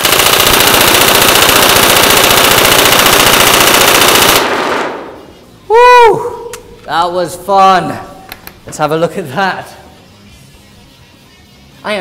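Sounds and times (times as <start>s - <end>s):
airsoft rifle full-auto rattle: 0.0s - 4.5s.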